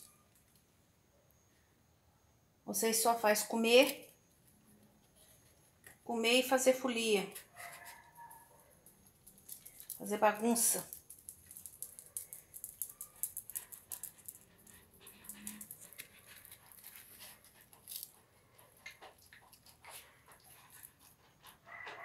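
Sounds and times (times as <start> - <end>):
dog claws clicking and scratching: 7.4 - 10.1, 10.7 - 22.0.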